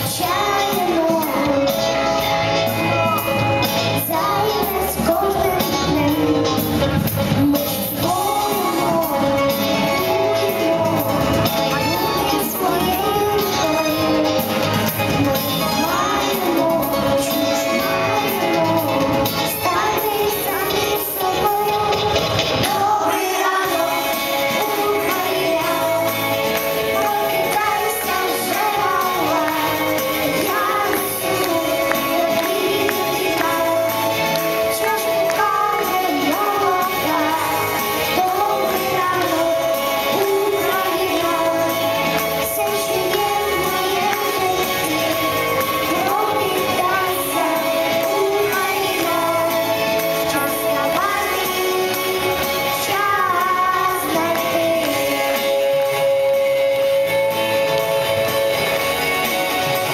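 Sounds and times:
girl singing into microphone: 0:00.0 - 0:02.3, 0:03.8 - 0:57.2
pop backing track: 0:00.0 - 0:59.9.

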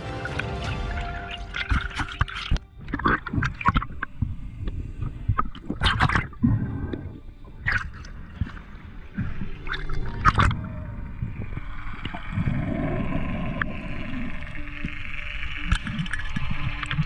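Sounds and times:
water sloshing and splashing: 0:00.0 - 0:12.6.

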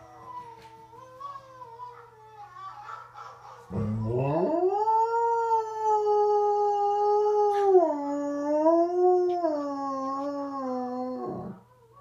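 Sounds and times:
dog howling: 0:03.7 - 0:11.6.

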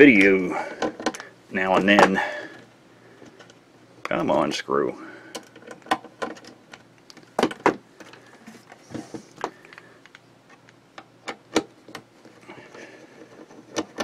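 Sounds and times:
metal radio case clicks and knocks: 0:05.4 - 0:08.2.

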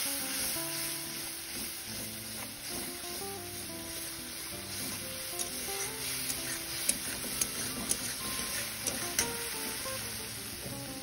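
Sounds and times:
sauce sizzling and bubbling: 0:00.0 - 0:11.0
soft background music: 0:00.0 - 0:11.0
metal spatula clicking on pan: 0:05.3 - 0:09.6.

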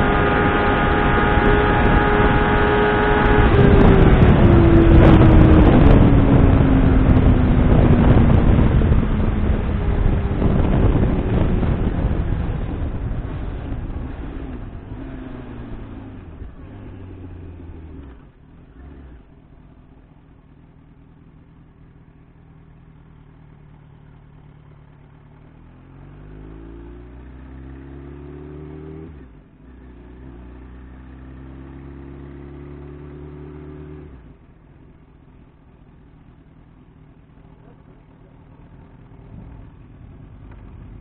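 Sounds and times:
wind rush: 0:00.0 - 0:15.7
motorcycle engine revving: 0:00.0 - 0:20.5, 0:23.5 - 0:41.0.

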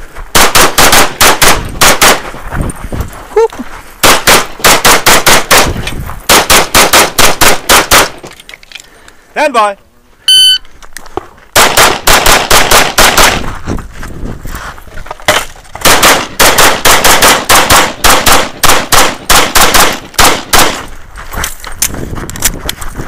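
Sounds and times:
rapid pistol shots: 0:00.3 - 0:02.2, 0:04.0 - 0:08.2, 0:11.6 - 0:13.4, 0:15.8 - 0:20.9.

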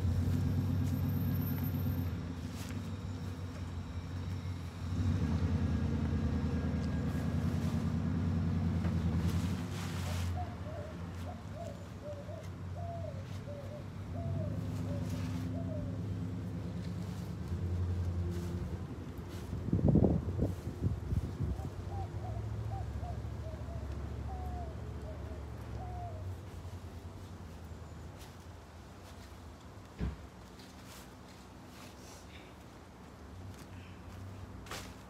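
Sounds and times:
engine idling rumble: 0:00.0 - 0:10.3.

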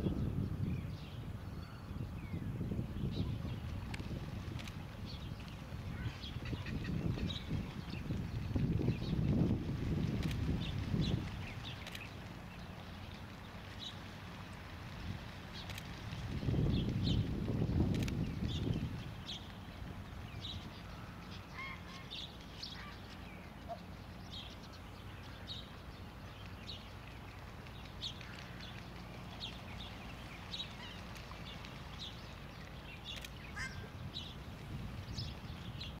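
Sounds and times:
wetland birds calling: 0:03.2 - 0:09.5, 0:18.4 - 0:36.0.

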